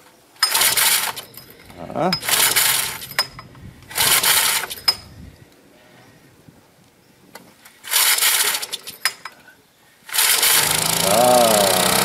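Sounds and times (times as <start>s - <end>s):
generator engine cranking: 0.4s - 5.0s, 7.8s - 9.2s, 10.1s - 12.0s.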